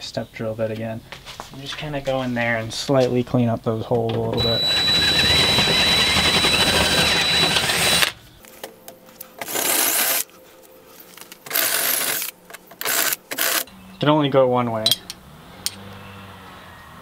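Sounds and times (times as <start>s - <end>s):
drill motor whine: 4.3s - 8.2s
drill bit rasping metal: 4.4s - 8.1s.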